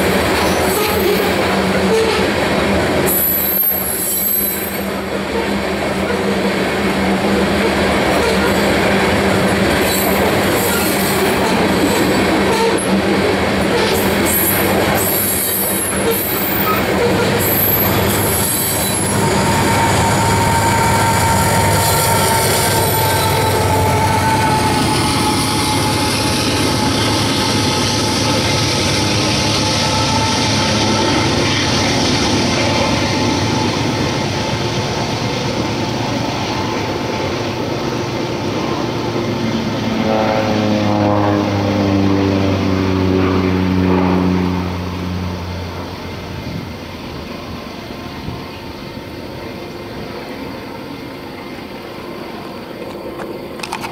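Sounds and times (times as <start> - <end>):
train wheel rumble and clicks: 0.0 - 39.8, 45.7 - 53.9
diesel locomotive running: 0.0 - 53.9
wheel squeal: 3.1 - 5.5, 13.7 - 33.8.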